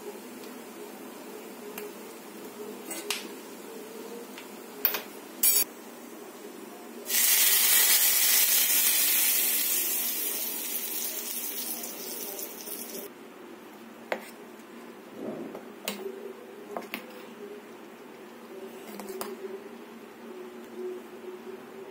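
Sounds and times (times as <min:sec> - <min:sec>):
hot oil sizzling: 0:07.1 - 0:13.1.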